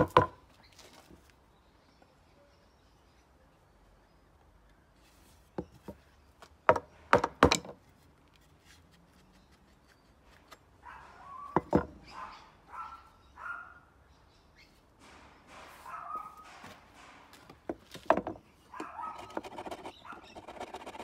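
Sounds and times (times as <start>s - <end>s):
wooden knocks of axe handle: 6.7s - 7.8s.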